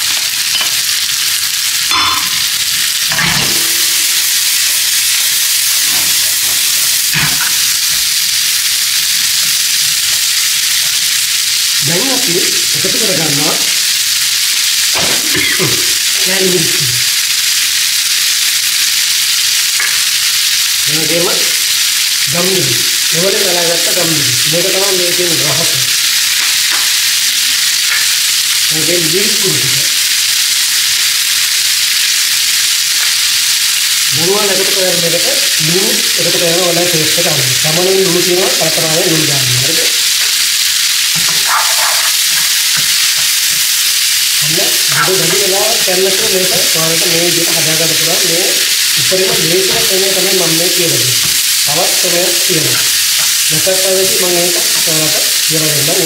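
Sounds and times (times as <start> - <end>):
vegetables sizzling in oil: 0.0 - 56.0
low voice speaking: 11.8 - 13.7, 15.0 - 17.0, 22.3 - 25.9, 28.7 - 29.9, 34.1 - 39.9, 44.4 - 52.8
spatula stirring in pan: 41.1 - 43.4.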